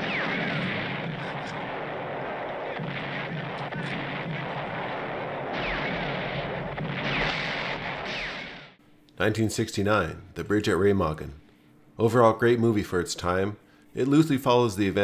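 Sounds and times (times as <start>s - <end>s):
artillery barrage: 0.0s - 8.8s.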